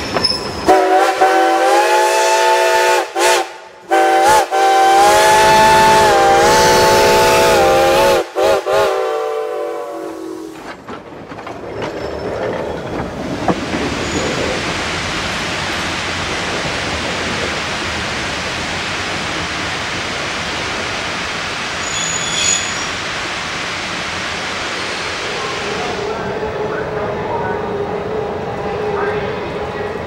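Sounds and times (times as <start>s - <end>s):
train running rumble and hiss: 0.0s - 30.0s
steam locomotive whistle: 0.6s - 10.6s, 21.8s - 23.0s.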